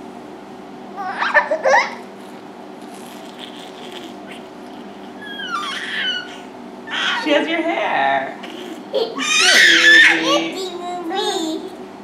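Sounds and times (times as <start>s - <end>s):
baby laughing squeals: 1.0s - 2.1s, 3.3s - 7.4s, 8.4s - 10.6s.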